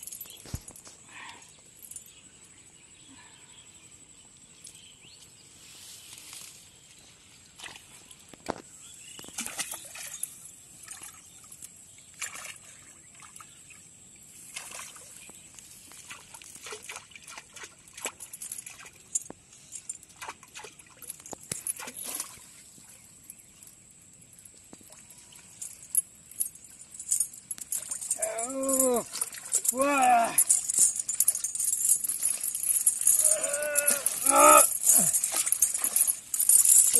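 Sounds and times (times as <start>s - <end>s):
chain clinking: 0.0s - 3.1s, 8.1s - 13.8s, 14.4s - 36.9s
water splashing and trickling: 7.3s - 36.9s.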